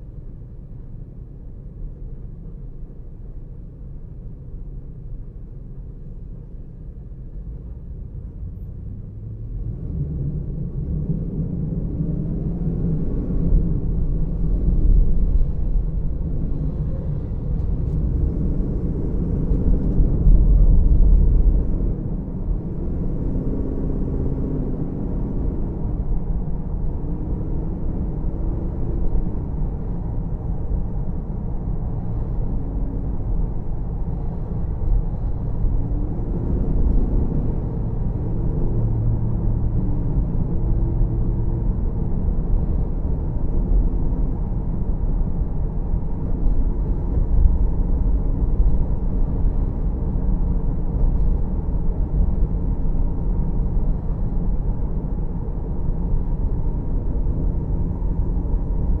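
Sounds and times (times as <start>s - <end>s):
car engine and road noise: 0.0s - 59.0s.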